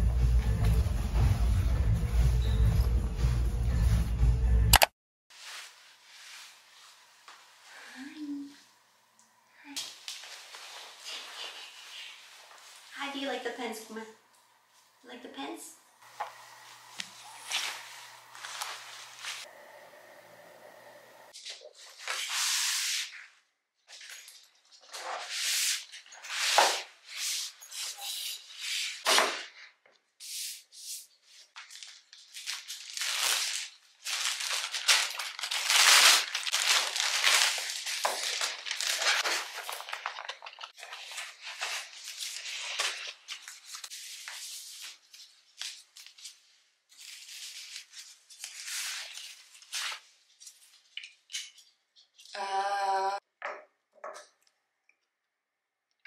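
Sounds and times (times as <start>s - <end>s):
plastic mailer bag crinkling: 31.6s - 43.9s.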